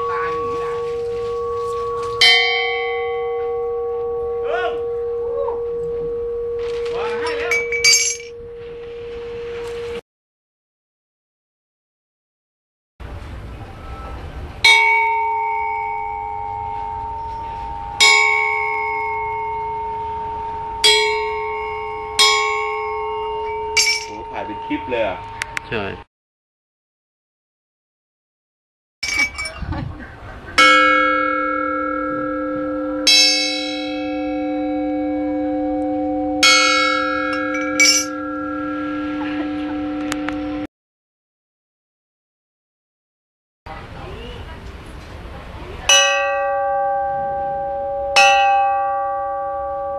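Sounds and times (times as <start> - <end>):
gong ringing: 0.0 - 10.0, 13.9 - 25.9, 30.6 - 40.7, 45.9 - 49.9.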